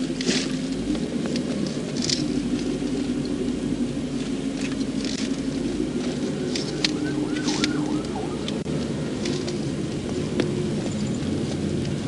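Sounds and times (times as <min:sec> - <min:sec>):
crackles and ticks: 0:00.0 - 0:12.0
low car engine drone: 0:00.0 - 0:12.0.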